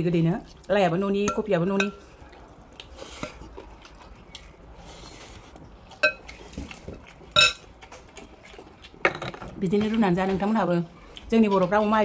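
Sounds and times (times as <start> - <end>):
dishes clinking: 6.0 - 6.3, 7.4 - 7.6.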